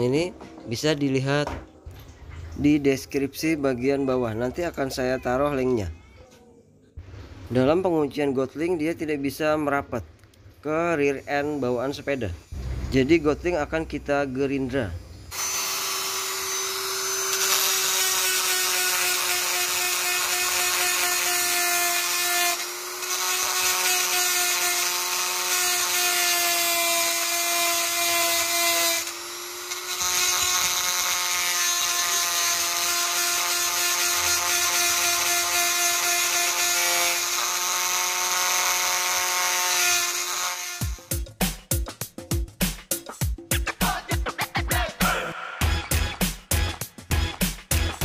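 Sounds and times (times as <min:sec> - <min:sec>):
rotary tool grinding metal: 0:15.3 - 0:41.1.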